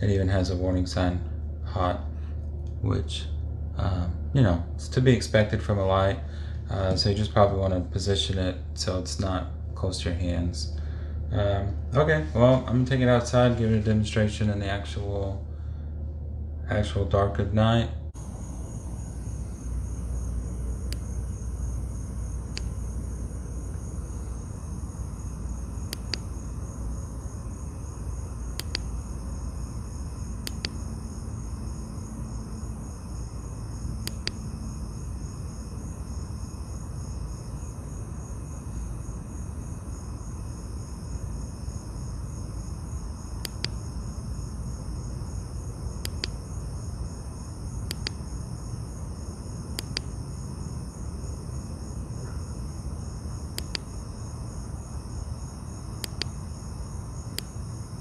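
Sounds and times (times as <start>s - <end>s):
crickets chirping: 0.0s - 17.0s, 17.6s - 58.0s
constant low rumble: 0.0s - 58.0s
faint sharp clicks: 22.5s - 22.8s, 25.9s - 26.3s, 28.6s - 28.9s, 30.4s - 30.8s, 43.4s - 43.8s, 46.0s - 46.4s, 47.8s - 48.2s, 49.8s - 50.1s, 53.5s - 53.9s, 56.0s - 56.4s, 57.3s - 57.5s.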